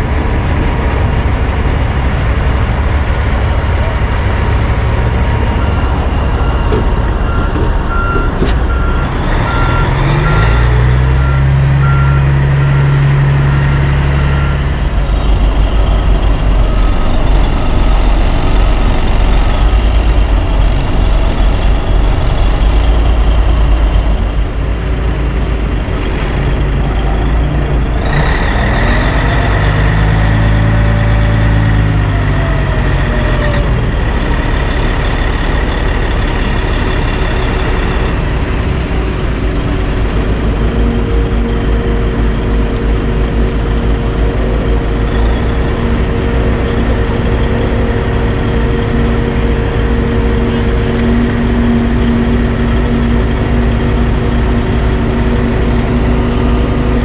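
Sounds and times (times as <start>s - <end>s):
dump truck diesel engines: 0.0s - 57.0s
engine revving: 0.0s - 57.0s
reversing alarm beeping: 5.0s - 23.0s, 44.8s - 57.0s.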